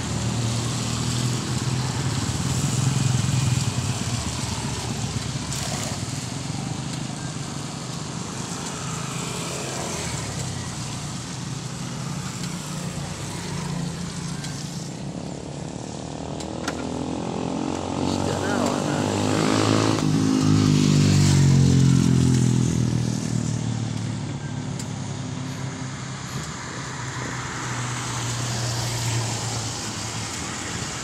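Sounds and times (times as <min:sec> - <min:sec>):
small engine running: 0:00.0 - 0:20.0.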